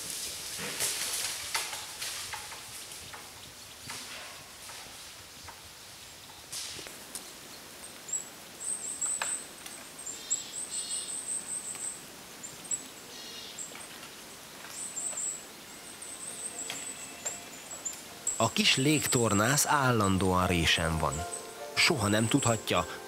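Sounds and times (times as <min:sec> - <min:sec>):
quiet forest background: 0:00.0 - 0:23.0
songbird high thin calls: 0:08.1 - 0:12.0.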